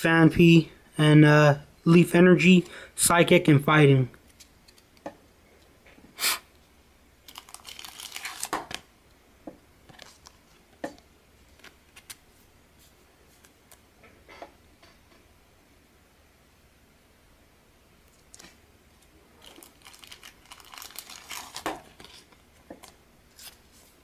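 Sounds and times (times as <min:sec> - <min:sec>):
plastic sleeve crinkling: 0:07.2 - 0:08.9, 0:19.4 - 0:24.0
sharp crackle: 0:19.4 - 0:22.3.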